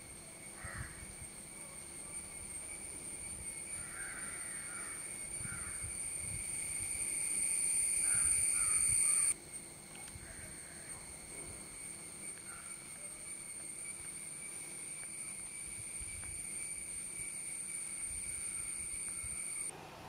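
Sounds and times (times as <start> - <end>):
crow-like bird caws: 0.6 - 1.0, 3.8 - 5.8, 8.0 - 9.3.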